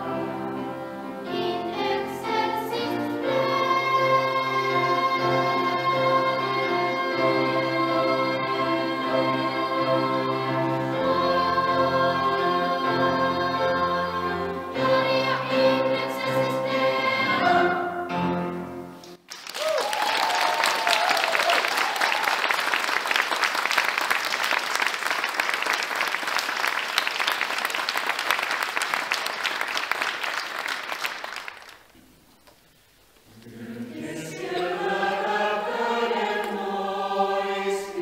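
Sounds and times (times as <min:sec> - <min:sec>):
choir singing a held chord: 0:00.0 - 0:18.5, 0:33.3 - 0:38.0
audience applause: 0:19.2 - 0:31.9.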